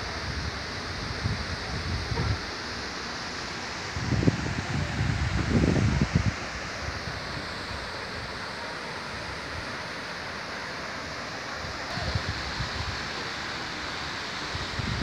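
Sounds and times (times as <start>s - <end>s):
rushing outdoor noise: 0.0s - 15.0s
wind buffeting microphone: 0.2s - 2.5s, 3.9s - 7.3s, 14.5s - 15.0s.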